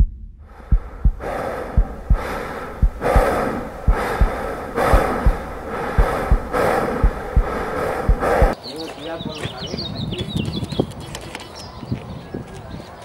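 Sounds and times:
heartbeat thumps: 0:00.0 - 0:08.6
breathing-like rush of noise: 0:00.4 - 0:08.6.

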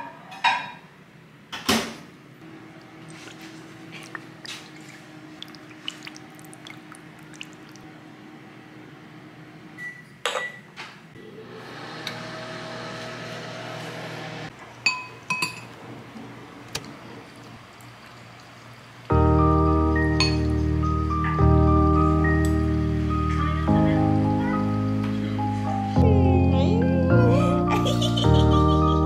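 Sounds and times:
spoon clinking ceramic bowl: 0:14.9 - 0:15.7, 0:20.2 - 0:20.5.

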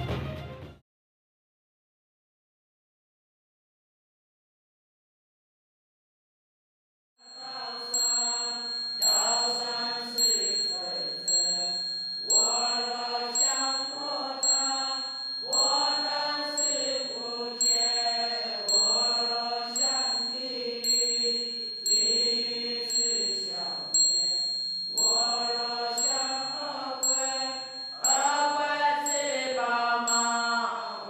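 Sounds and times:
children chanting in unison: 0:07.2 - 0:31.0.

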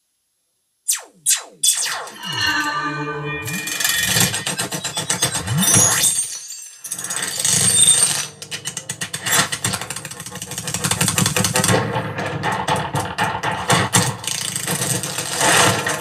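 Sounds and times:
rushing sound effect: 0:00.9 - 0:06.8.

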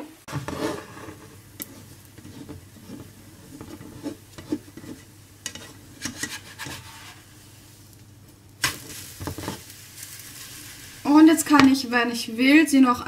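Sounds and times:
faint sizzling: 0:00.0 - 0:13.0
spatula scraping frying pan: 0:00.2 - 0:07.5, 0:08.6 - 0:11.7.

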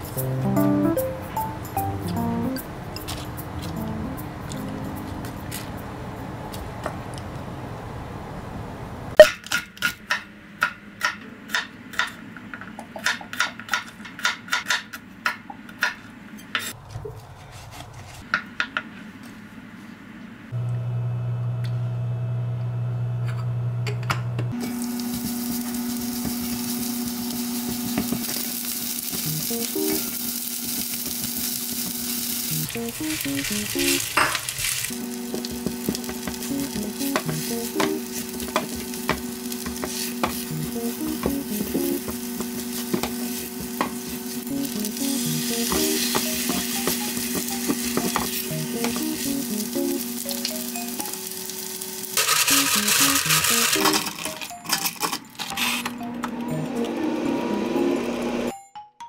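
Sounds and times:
food sizzling on griddle: 0:24.6 - 0:54.2
spatula stirring food: 0:32.7 - 0:49.8
knife tapping cutting board: 0:35.3 - 0:44.0, 0:45.7 - 0:49.1.

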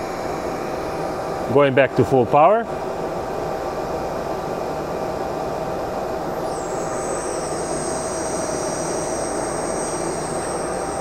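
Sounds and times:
high whine sliding down: 0:06.2 - 0:11.0.

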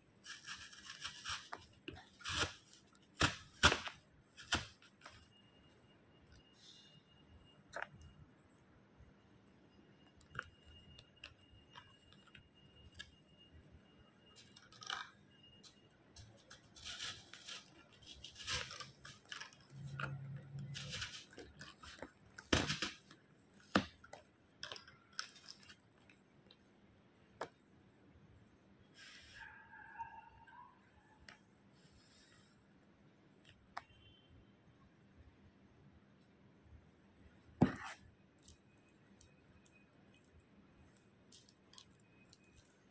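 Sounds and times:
plastic stems clicking and rustling: 0:16.2 - 0:26.6.

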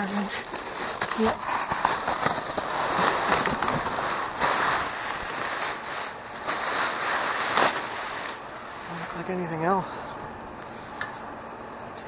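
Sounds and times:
sharp crackles: 0:00.0 - 0:09.5
trash rustling and crinkling: 0:00.0 - 0:10.0.

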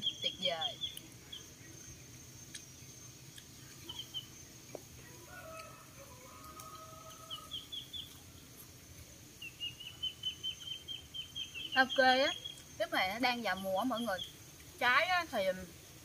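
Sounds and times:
small birds chirping: 0:00.0 - 0:16.0
faint rooster crow: 0:05.0 - 0:08.4.

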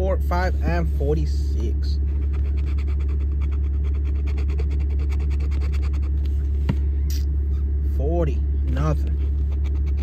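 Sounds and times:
steady low hum: 0:00.0 - 0:10.0
coin scraping lottery ticket: 0:02.2 - 0:06.2.

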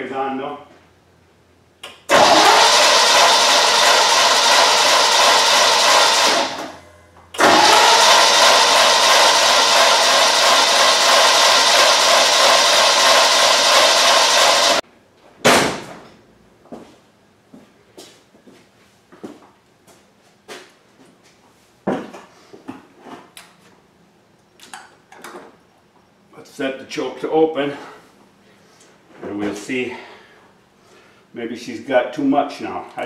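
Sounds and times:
engine starter cranking: 0:02.1 - 0:06.8, 0:07.4 - 0:14.8.

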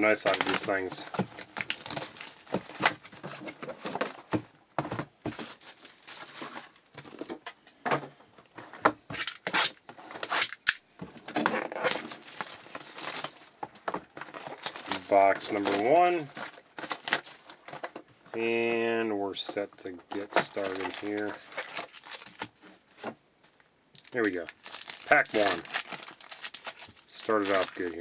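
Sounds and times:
plastic wrap crinkling and ripping: 0:00.0 - 0:04.4, 0:05.2 - 0:07.3, 0:09.1 - 0:18.0, 0:19.7 - 0:28.0
cardboard box rustling: 0:00.0 - 0:07.4, 0:11.3 - 0:18.0, 0:20.1 - 0:23.2.

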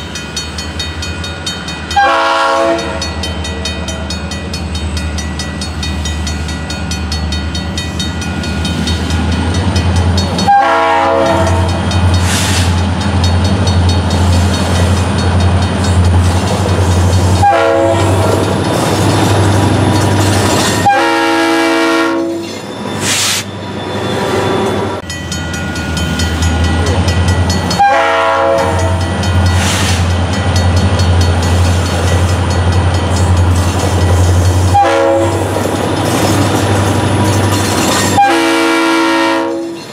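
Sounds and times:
diesel locomotive engine drone: 0:00.0 - 0:39.9
multi-note locomotive horn: 0:01.9 - 0:03.1, 0:10.4 - 0:11.8, 0:17.4 - 0:18.4, 0:20.8 - 0:22.5, 0:27.7 - 0:29.0, 0:34.7 - 0:35.5, 0:38.2 - 0:39.8.

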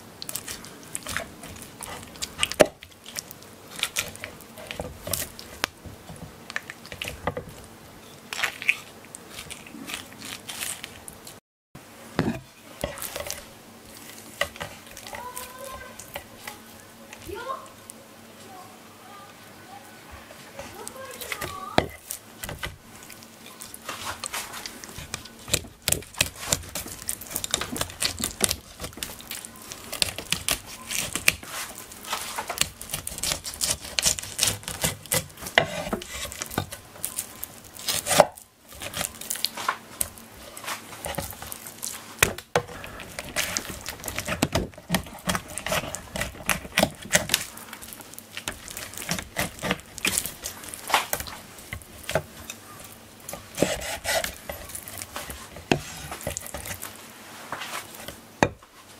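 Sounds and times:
knife cutting fish on board: 0:32.1 - 0:36.7, 0:42.2 - 0:47.5, 0:48.4 - 0:52.3, 0:53.4 - 0:56.8.

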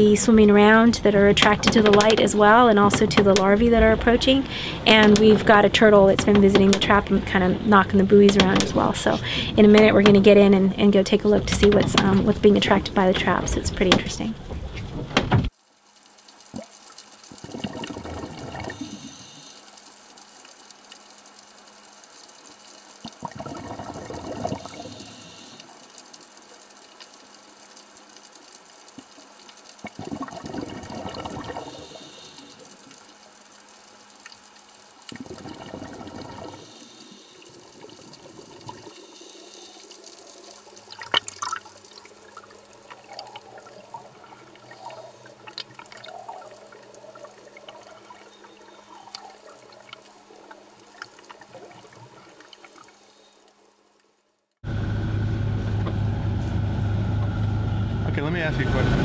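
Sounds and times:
diver exhaling bubbles underwater: 0:17.3 - 0:19.6, 0:23.0 - 0:25.7, 0:29.8 - 0:33.0, 0:35.1 - 0:52.9.

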